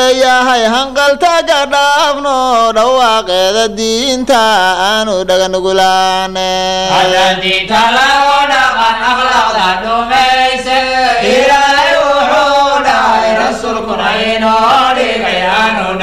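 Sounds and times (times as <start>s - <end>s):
voices chanting: 6.9s - 16.0s.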